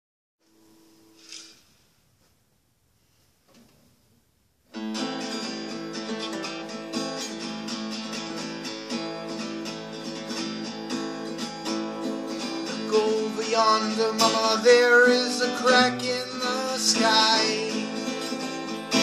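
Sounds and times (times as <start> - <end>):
acoustic guitar strumming chords: 4.7 - 19.0
man singing: 12.5 - 19.0.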